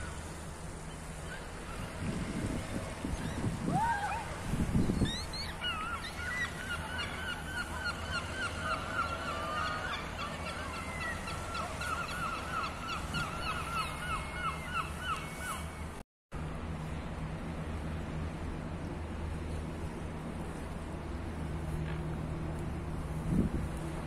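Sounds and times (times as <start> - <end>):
gulls calling: 0.0 - 16.0
wind rumbling on microphone: 1.3 - 6.6, 16.5 - 24.0.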